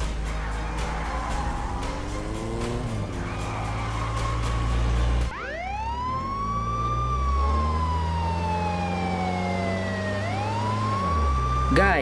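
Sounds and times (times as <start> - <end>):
engine hum: 0.0 - 12.0
police siren wailing: 0.0 - 12.0.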